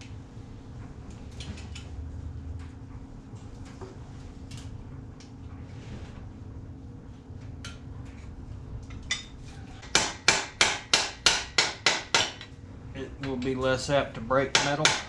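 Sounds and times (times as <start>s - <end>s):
hammer tapping on metal: 9.8s - 12.5s, 14.5s - 15.0s.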